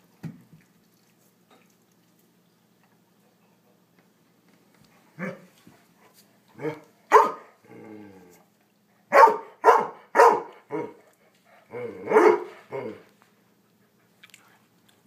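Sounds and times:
dog barking: 5.2s - 5.5s, 6.6s - 7.6s, 9.1s - 11.0s, 12.1s - 12.9s
dog growling low: 7.6s - 8.5s, 11.6s - 13.1s.

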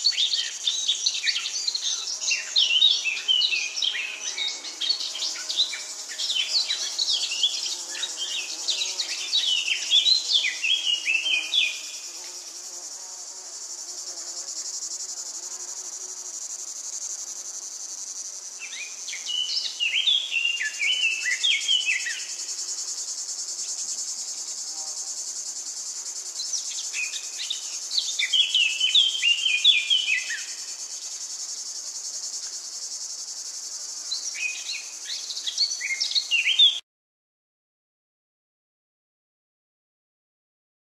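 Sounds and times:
songbird singing: 0.0s - 13.2s, 18.6s - 22.5s, 26.2s - 30.7s, 34.0s - 36.8s
high insect chorus: 0.0s - 36.8s.

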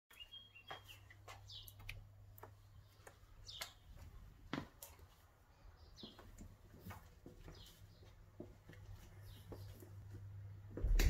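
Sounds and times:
low hum: 10.6s - 11.0s.

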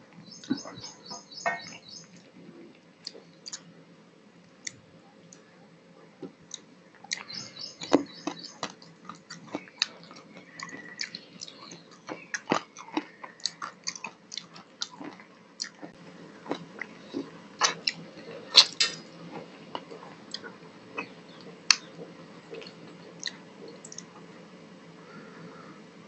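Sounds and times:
chewing and lip-smacking: 6.5s - 21.9s.

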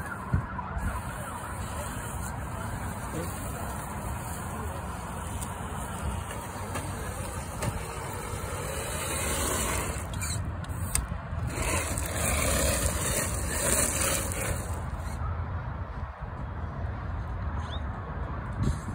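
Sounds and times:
tyres crunching gravel: 1.4s - 15.2s
electric motor running: 7.1s - 10.2s, 11.5s - 14.8s.

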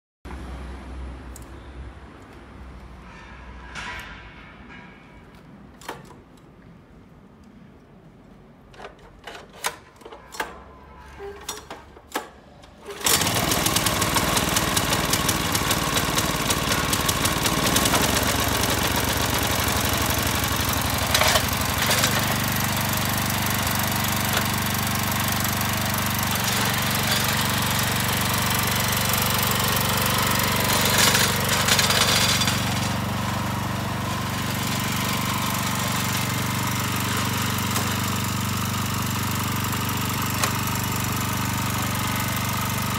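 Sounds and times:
tiller engine running: 12.8s - 42.9s.

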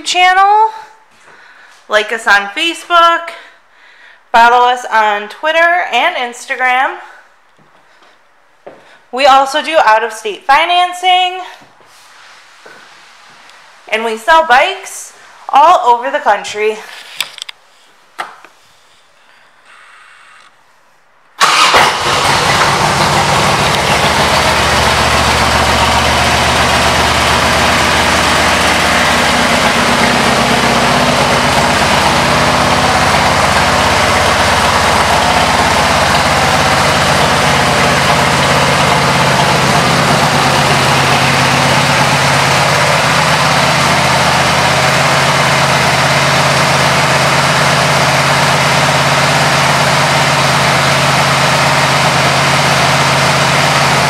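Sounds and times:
motorcycle engine starting and idling: 21.4s - 54.0s.

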